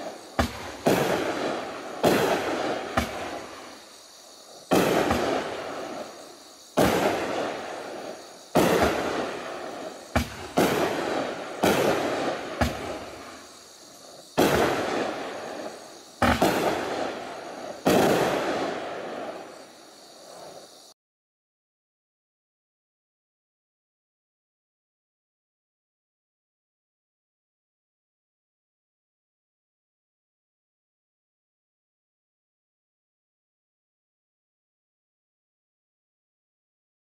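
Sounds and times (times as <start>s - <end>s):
fireworks bangs: 0.0s - 20.7s.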